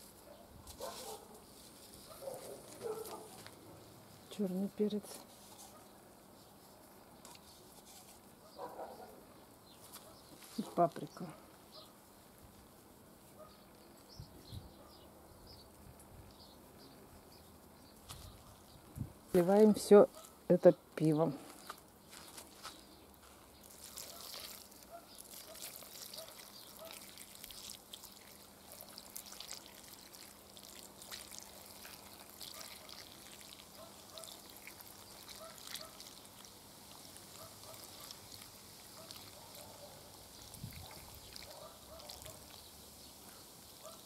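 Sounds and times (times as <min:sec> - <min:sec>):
beer trickling onto vegetables: 0:21.5 - 0:44.0.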